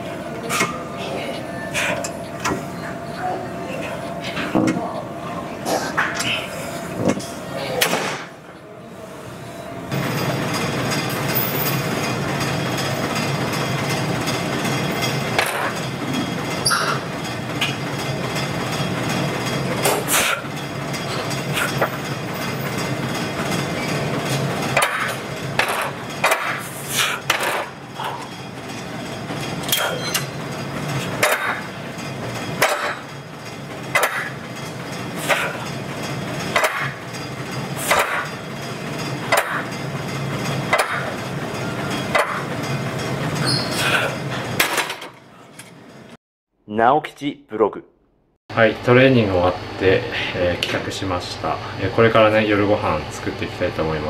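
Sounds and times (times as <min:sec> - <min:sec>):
steady background hum: 0:00.0 - 0:54.0
exercise machine knocking: 0:09.9 - 0:26.6, 0:27.2 - 0:43.4.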